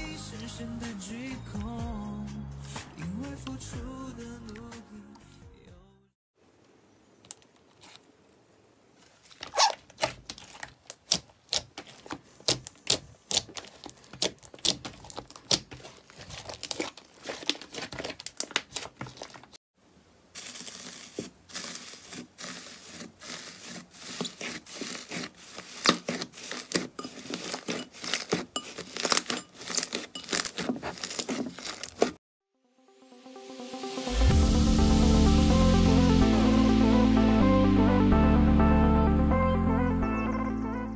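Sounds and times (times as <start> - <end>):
slime squishing and crackling: 9.1 - 19.6, 20.4 - 32.2.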